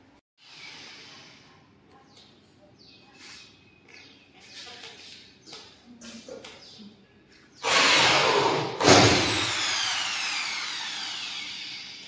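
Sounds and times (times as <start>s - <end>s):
power drill motor whine: 7.6s - 12.0s.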